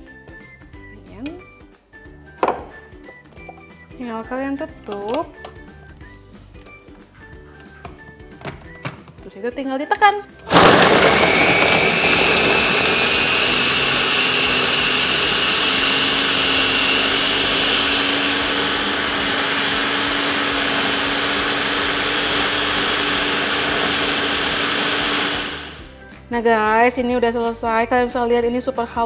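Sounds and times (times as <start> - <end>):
electric food chopper whining: 10.5 - 26.0.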